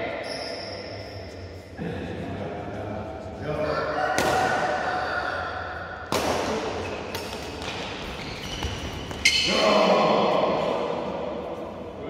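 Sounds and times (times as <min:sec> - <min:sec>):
racket hitting shuttlecock: 0:04.2 - 0:04.6, 0:06.0 - 0:09.3.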